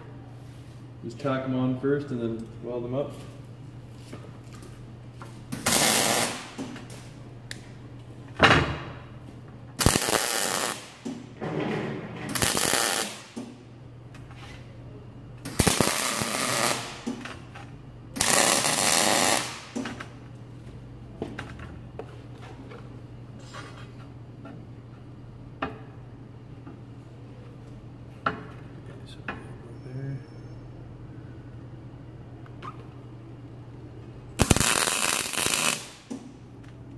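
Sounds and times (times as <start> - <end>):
steady low hum: 0.0 - 36.9
welder arc crackling: 5.5 - 7.0, 9.8 - 11.2, 12.3 - 13.4, 15.5 - 17.2, 18.2 - 19.8, 34.3 - 36.2.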